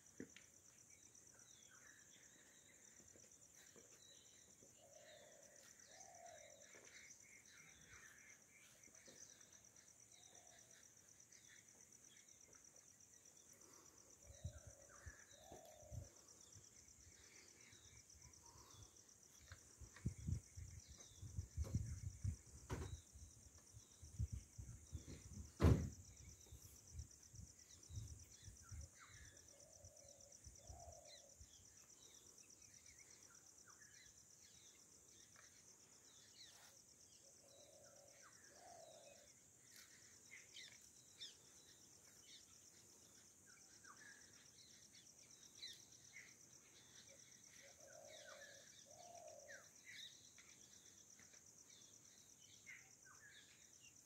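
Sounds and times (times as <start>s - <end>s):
wild birds chirping: 0.0s - 54.0s.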